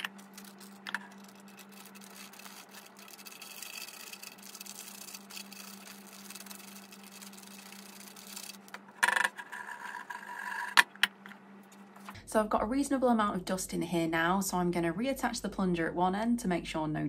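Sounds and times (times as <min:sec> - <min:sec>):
scrape with ringing tone: 0:00.0 - 0:08.6
steady low hum: 0:00.0 - 0:09.1.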